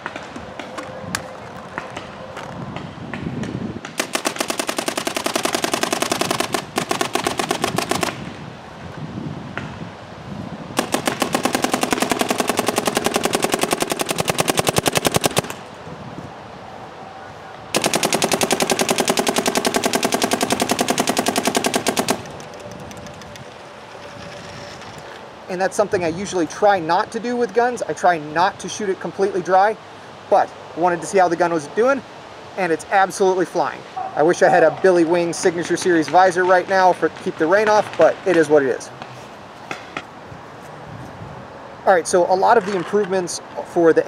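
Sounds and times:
paintball marker rapid firing: 0:03.9 - 0:08.3, 0:10.8 - 0:15.6, 0:17.8 - 0:23.4.

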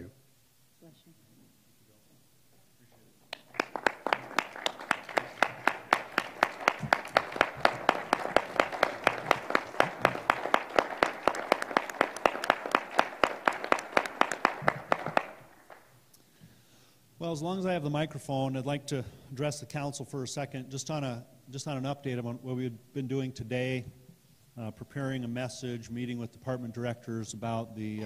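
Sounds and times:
group of people applauding: 0:03.3 - 0:16.0
sharp close claps: 0:03.3 - 0:16.2.

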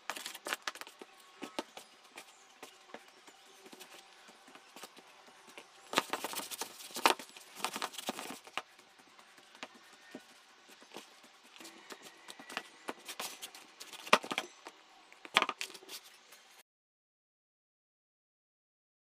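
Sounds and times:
hands kneading dough: 0:00.0 - 0:14.6.

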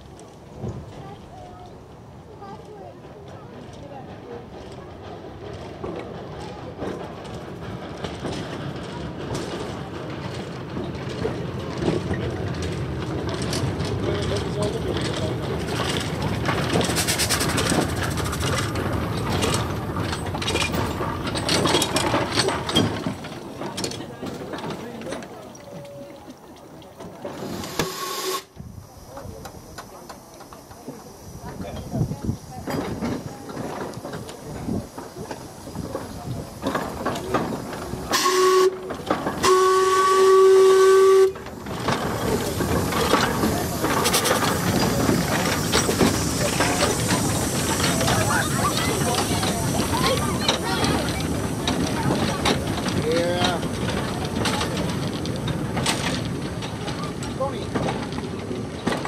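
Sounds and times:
clanking and rattling wheels: 0:00.0 - 0:59.0
steam locomotive rolling on rails: 0:00.0 - 0:59.0
steam whistle blowing: 0:27.6 - 0:28.5, 0:38.1 - 0:41.4.

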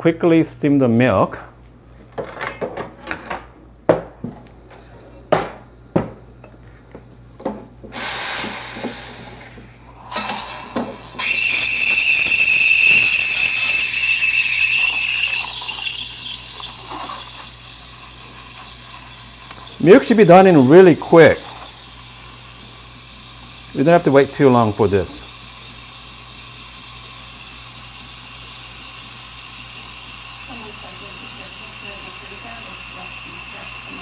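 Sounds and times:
steam wand hissing: 0:07.9 - 0:34.0
steel milk pitcher clinking: 0:10.0 - 0:22.7.

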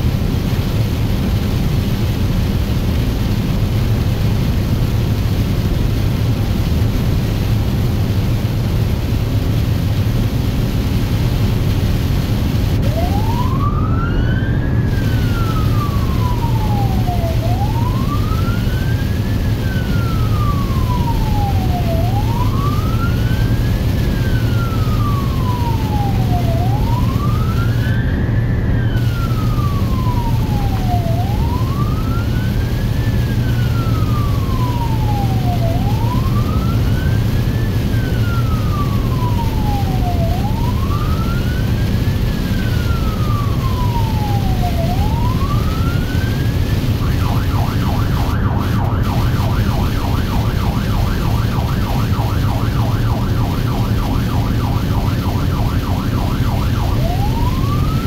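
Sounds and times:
low engine and road drone: 0:00.0 - 0:58.0
electronic siren wailing: 0:12.6 - 0:58.0.

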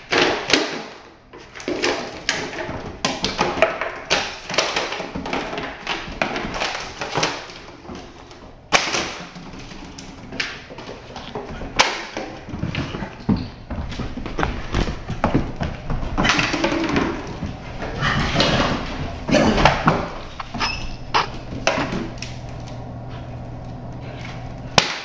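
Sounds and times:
dog paws scrabbling on wooden floor: 0:01.3 - 0:24.8
ball knocking about: 0:12.2 - 0:22.2.

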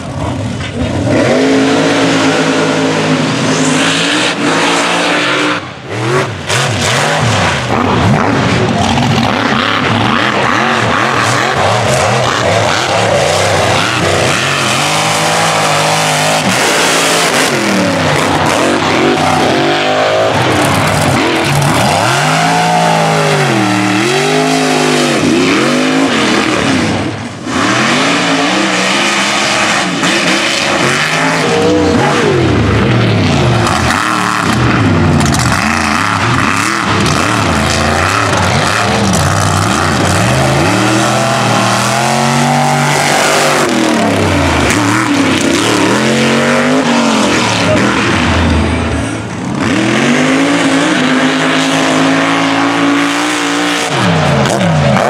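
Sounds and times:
truck engines revving: 0:00.0 - 0:55.0.

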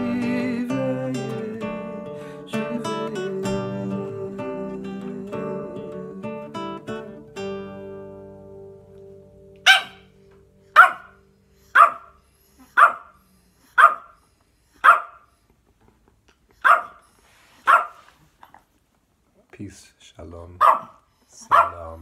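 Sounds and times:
acoustic guitar notes: 0:00.0 - 0:11.7
dog barking: 0:09.7 - 0:10.1, 0:10.8 - 0:14.2, 0:14.8 - 0:15.3, 0:16.6 - 0:17.0, 0:17.6 - 0:18.1, 0:20.6 - 0:22.0.

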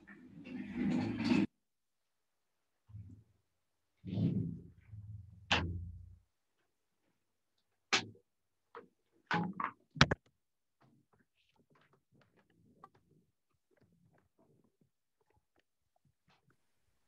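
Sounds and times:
objects knocking and clunking: 0:08.8 - 0:14.7.

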